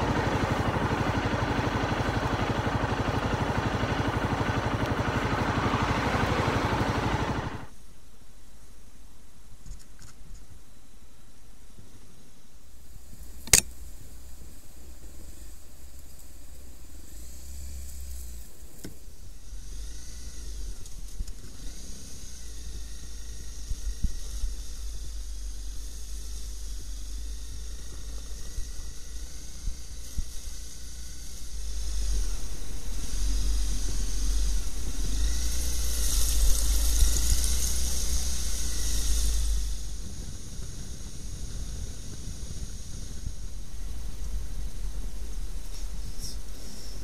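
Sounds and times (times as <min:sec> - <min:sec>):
motorcycle engine rumble: 0:00.0 - 0:07.8
sharp click: 0:13.4 - 0:13.8.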